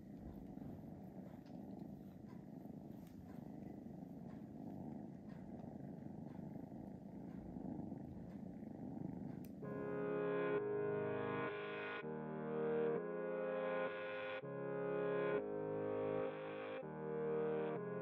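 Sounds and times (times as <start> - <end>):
cat purring: 0.0 - 12.1.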